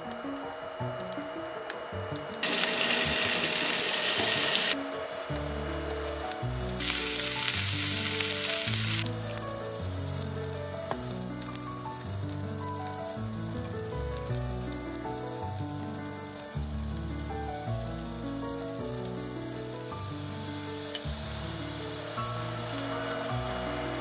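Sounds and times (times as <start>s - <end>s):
background music: 0.0s - 24.0s
beef sizzling in a frying pan: 2.4s - 24.0s.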